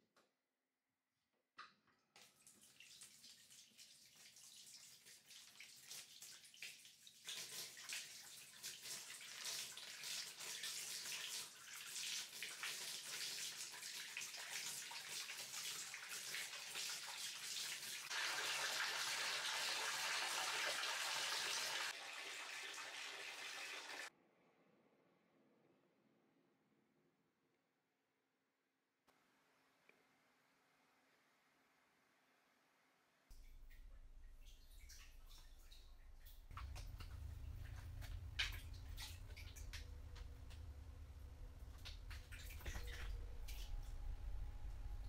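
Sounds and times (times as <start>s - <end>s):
tap water pouring into a tub: 2.1s - 24.1s, 33.3s - 43.8s.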